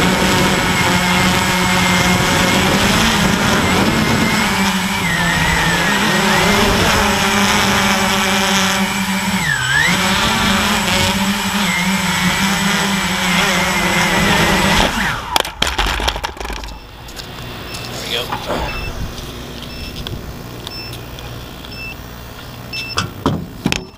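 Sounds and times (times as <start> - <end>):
quadcopter crashing on concrete: 0.0 - 21.4
quadcopter motors whining: 0.0 - 23.8.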